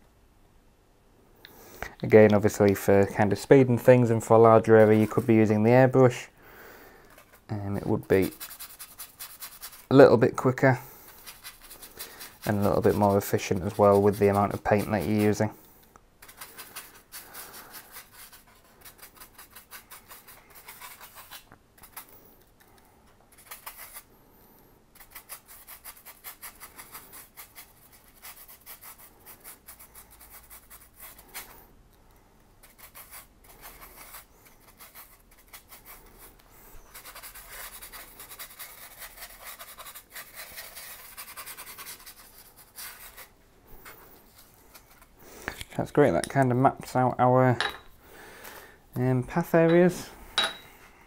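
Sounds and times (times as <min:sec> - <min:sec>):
paintbrush scrubbing foam: 0:04.0 - 0:06.2, 0:07.1 - 0:15.6, 0:16.2 - 0:22.1, 0:24.9 - 0:31.6, 0:32.6 - 0:45.2.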